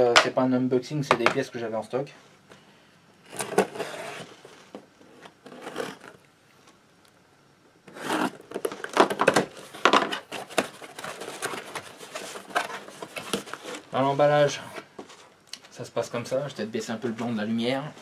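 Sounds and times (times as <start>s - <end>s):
tape and cardboard ripping: 3.2s - 6.2s, 7.9s - 13.9s
knife slicing packing tape: 7.9s - 8.4s.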